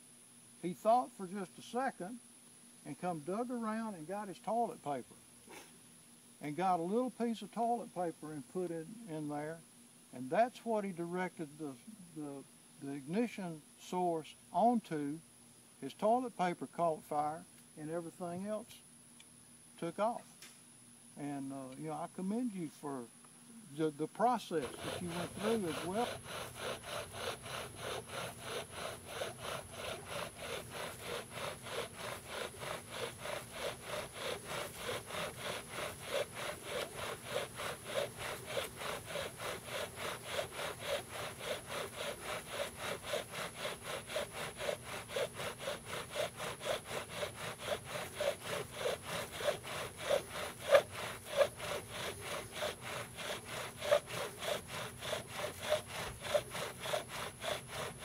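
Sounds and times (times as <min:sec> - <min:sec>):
bow drill grinding and squeaking: 0:24.4 - 0:58.0.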